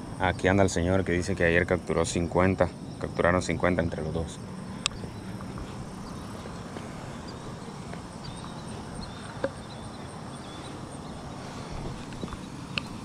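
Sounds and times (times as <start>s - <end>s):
faint insect chirps: 0.0s - 13.0s
low background noise: 0.0s - 13.0s.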